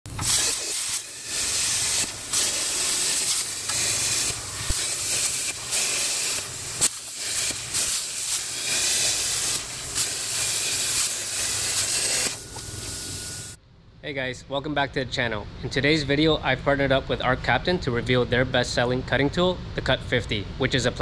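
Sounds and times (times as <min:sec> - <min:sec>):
plasma cutter arc hissing: 0:00.1 - 0:13.6.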